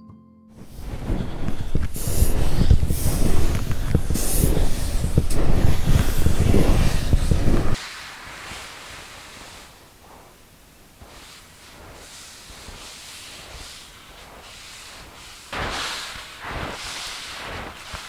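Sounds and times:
wind buffeting microphone: 0.6 - 7.8
faint hiss: 0.6 - 18.0.

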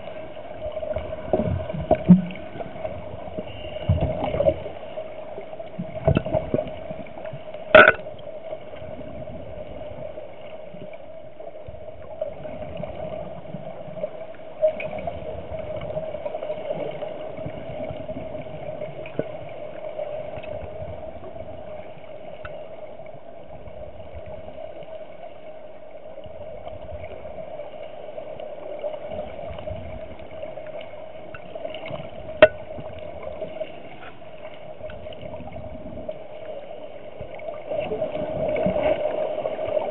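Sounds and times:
steady underwater hum: 0.0 - 39.9
bubbles gurgling underwater: 5.8 - 8.2.

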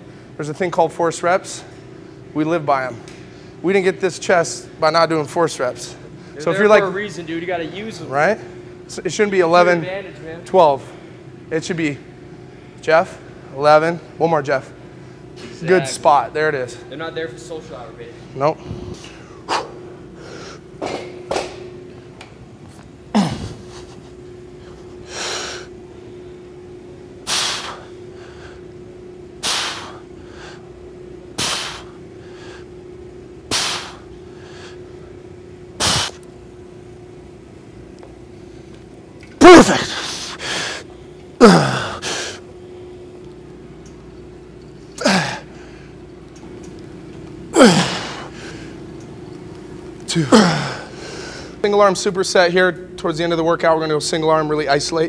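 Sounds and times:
man grunting with strain: 23.2 - 23.8, 39.4 - 40.2, 41.4 - 42.1, 45.0 - 45.5, 47.5 - 48.3, 50.2 - 51.0.

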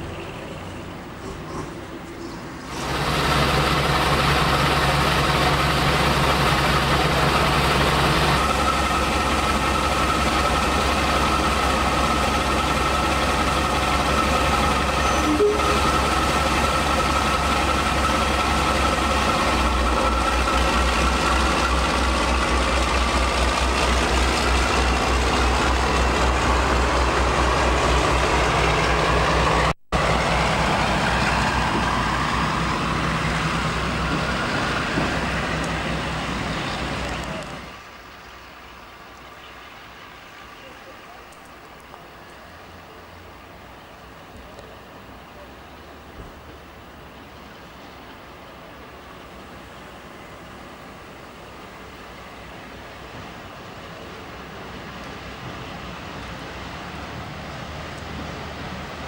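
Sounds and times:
diesel locomotive engines running: 0.0 - 59.0
high whistle: 15.0 - 16.1.

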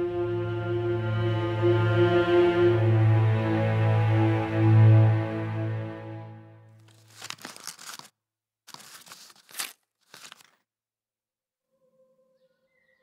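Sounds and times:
background music: 0.0 - 6.7
paper crinkling and crumpling: 6.8 - 10.6.

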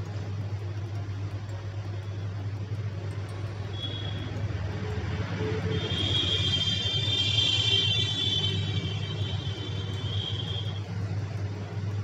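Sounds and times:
hot air blower hum: 2.8 - 12.0.

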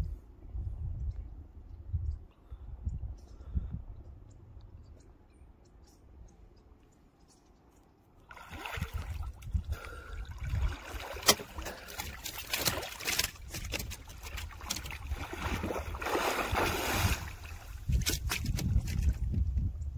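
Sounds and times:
water sloshing and splashing: 8.2 - 19.6.

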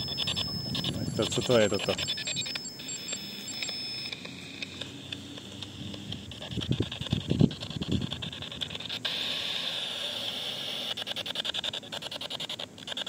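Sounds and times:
radio static stuttering: 0.0 - 9.3.

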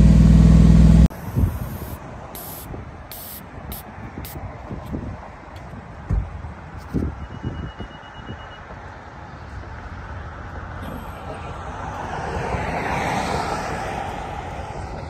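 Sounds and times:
high-pitched beep: 7.2 - 8.6
car driving past: 11.1 - 15.0.

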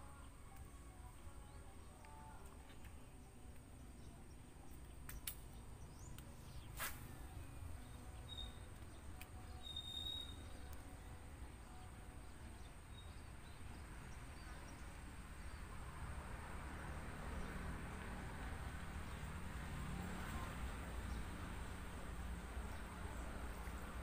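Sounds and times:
bird chirping: 1.4 - 10.9
sharp click: 5.0 - 5.5.

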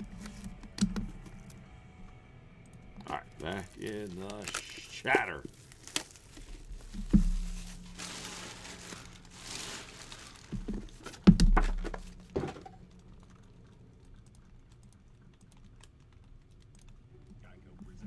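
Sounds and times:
boxes rustling and crinkling: 3.4 - 12.8.

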